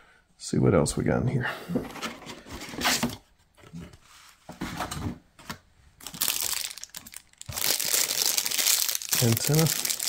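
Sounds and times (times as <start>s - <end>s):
plastic bag crinkling: 6.0s - 10.0s.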